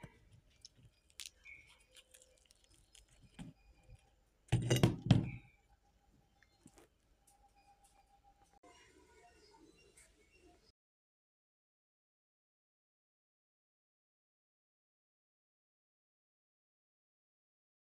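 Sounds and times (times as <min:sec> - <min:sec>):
crackling rustle: 0:00.0 - 0:04.1
fried snacks crackling on a plate: 0:00.0 - 0:04.1.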